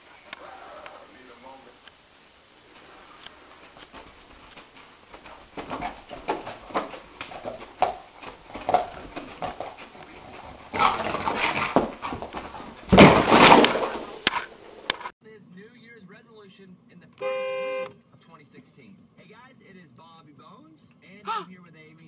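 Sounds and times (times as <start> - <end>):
dog scrambling and running: 3.6 - 15.1.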